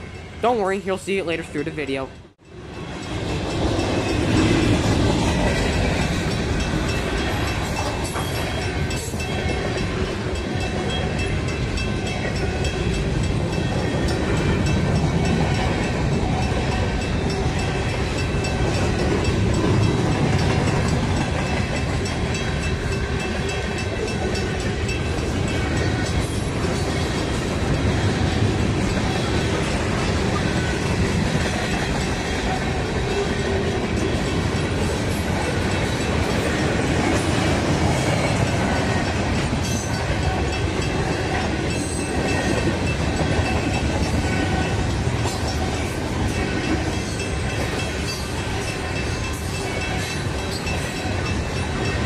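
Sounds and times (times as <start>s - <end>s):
freight train wheels rumbling: 0.0s - 52.0s.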